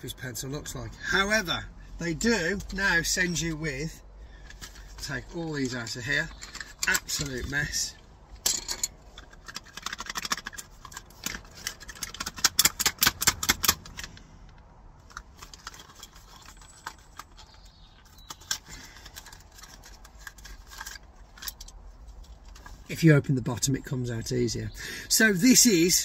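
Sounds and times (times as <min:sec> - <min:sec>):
pencils and box rattling: 0:04.4 - 0:14.2, 0:15.0 - 0:22.9
dense run of clicking: 0:08.4 - 0:21.8.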